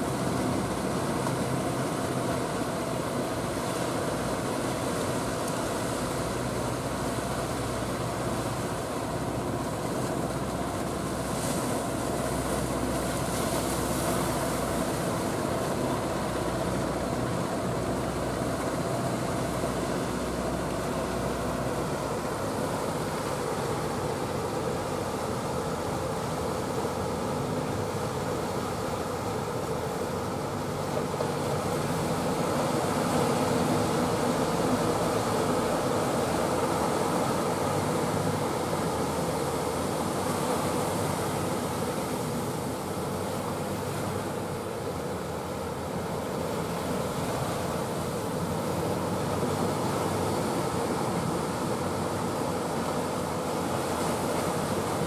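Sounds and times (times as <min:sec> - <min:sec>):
churning water and surf: 0:00.0 - 0:55.0
low boat engine hum: 0:00.0 - 0:55.0.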